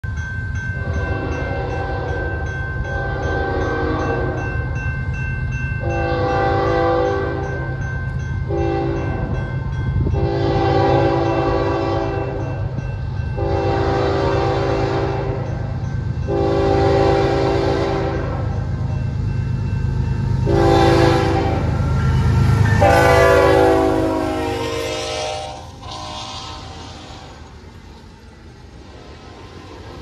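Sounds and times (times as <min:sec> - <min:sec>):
train rumbling: 0:00.0 - 0:30.0
locomotive horn blasts: 0:02.9 - 0:04.4, 0:05.8 - 0:07.5, 0:08.5 - 0:09.3, 0:10.1 - 0:12.6, 0:13.4 - 0:15.4, 0:16.3 - 0:18.5, 0:20.4 - 0:21.8, 0:22.7 - 0:27.6.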